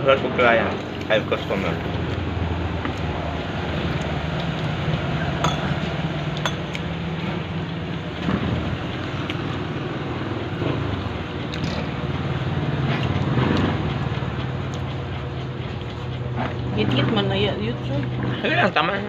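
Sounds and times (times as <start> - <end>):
vehicle engine humming: 0.0 - 19.0
cutlery clinking on plates: 5.4 - 6.7.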